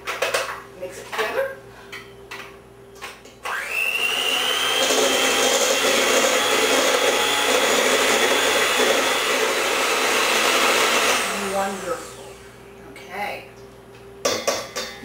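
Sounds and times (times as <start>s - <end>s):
electric hand mixer whining: 3.4s - 12.6s.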